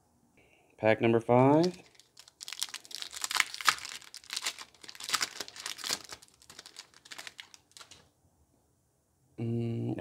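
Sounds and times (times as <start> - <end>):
foil wrapper crinkling and tearing: 1.4 - 8.1.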